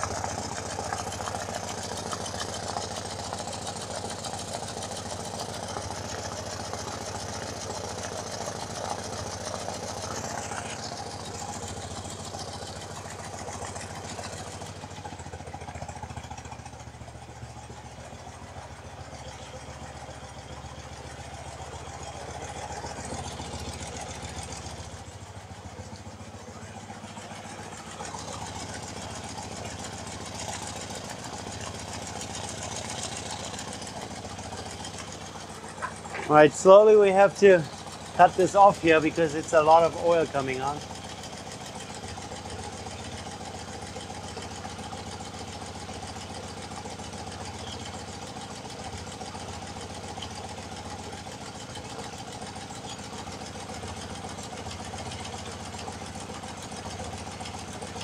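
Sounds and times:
motorcycle engine idling: 0.0 - 58.0.

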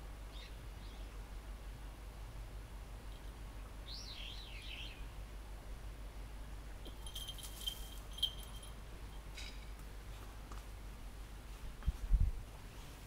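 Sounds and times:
bird chirping: 3.1 - 5.1
small metal bell jingling: 6.9 - 8.8.

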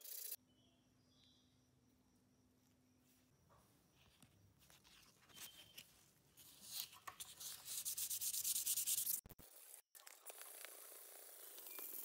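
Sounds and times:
sandpaper scratching on metal blade: 6.4 - 9.3.

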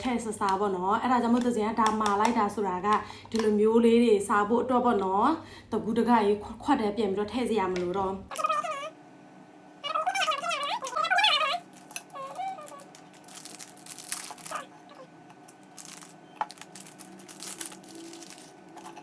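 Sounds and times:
snack packaging crinkling: 9.9 - 19.0
candies clicking onto shaved ice: 11.7 - 14.6, 15.5 - 19.0.

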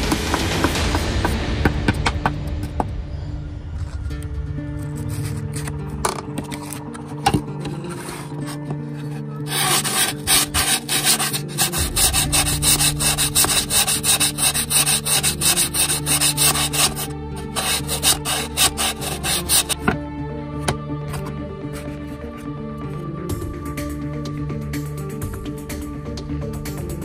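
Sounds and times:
sanding block scratching wood: 7.9 - 19.9.

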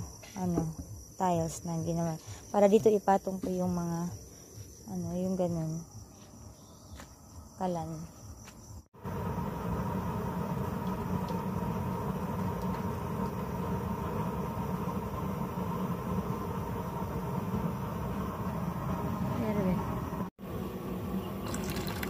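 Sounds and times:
blower fan motor hum: 9.0 - 22.0
stove flame rushing: 9.0 - 22.0.

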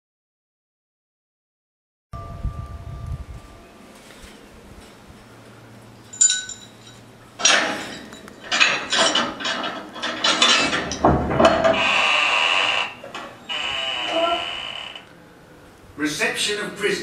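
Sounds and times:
hard metallic clinking and clanking: 6.0 - 13.5.

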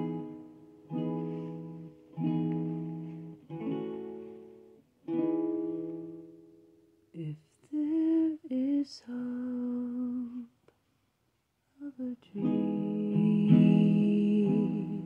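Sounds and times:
ukulele strum: 0.0 - 6.9, 12.4 - 15.0
person humming: 11.8 - 15.0.

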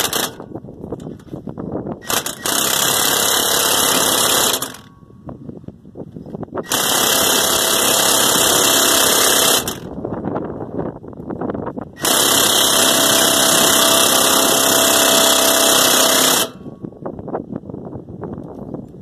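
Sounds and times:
impact wrench hammering: 0.0 - 0.5, 2.0 - 5.0, 6.6 - 9.9, 12.0 - 16.8.

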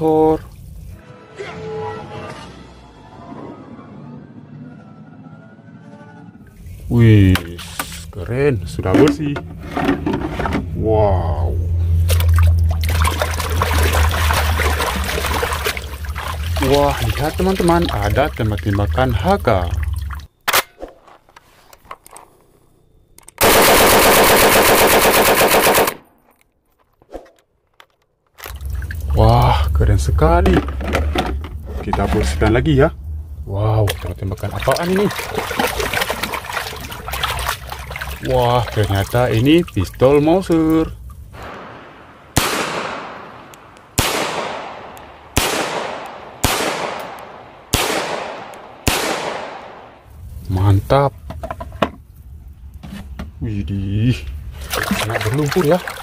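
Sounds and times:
automatic gunfire: 23.4 - 26.0, 44.0 - 47.1, 47.7 - 49.7
pistol gunshots echoing: 41.4 - 50.0.

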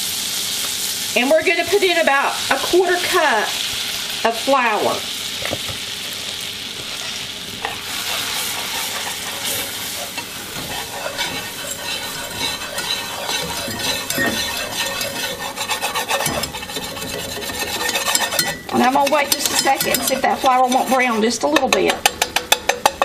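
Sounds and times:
butter sizzling in a pan: 0.0 - 23.0
whisk scraping a pan: 6.8 - 23.0.

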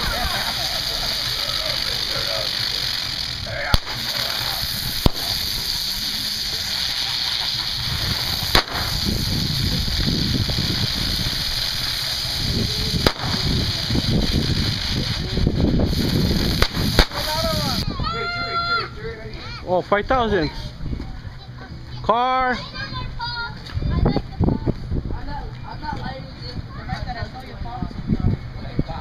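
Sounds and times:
firework fountains hissing: 0.0 - 19.6
low rumbling noise: 0.0 - 25.4
sharp firework pops: 1.2 - 17.8.

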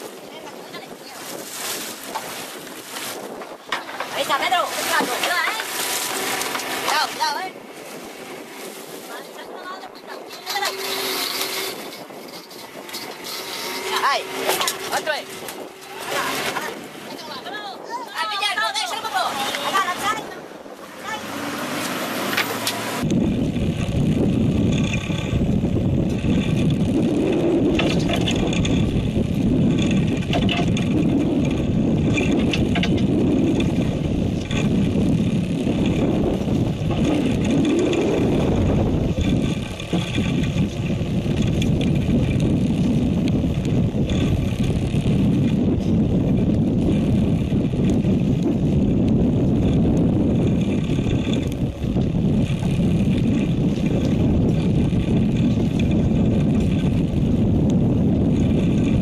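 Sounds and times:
water wash: 0.0 - 24.1
boat engine rumble: 0.0 - 59.0
wind on microphone: 0.0 - 59.0.

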